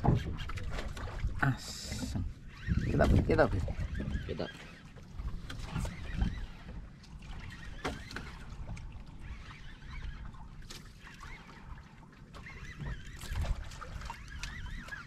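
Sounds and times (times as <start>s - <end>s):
fishing boat engine rumble: 0.0s - 15.0s.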